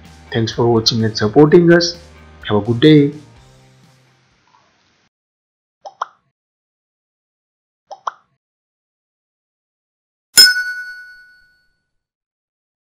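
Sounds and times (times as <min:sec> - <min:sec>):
bright bell-like ding: 0:10.4 - 0:11.7.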